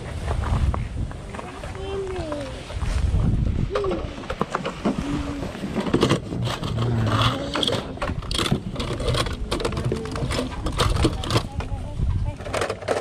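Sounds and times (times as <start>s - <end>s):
plastic toys clicking and rattling: 5.8s - 13.0s.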